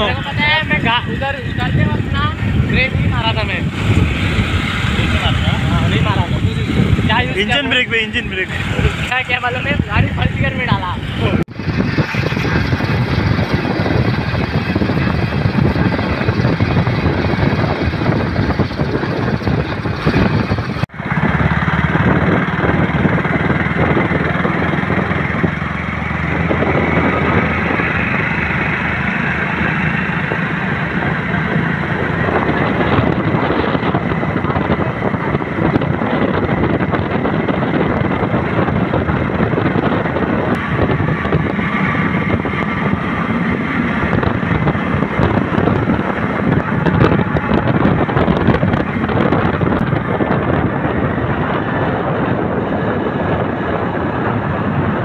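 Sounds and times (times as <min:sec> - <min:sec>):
wind on microphone: 0:00.0 - 0:55.0
motor scooter engine running: 0:11.5 - 0:55.0.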